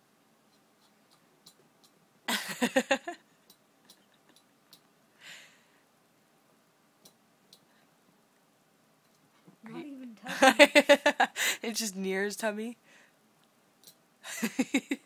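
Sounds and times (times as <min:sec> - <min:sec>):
breathy exhale: 0:05.2 - 0:05.8
faint clicks: 0:07.0 - 0:07.7.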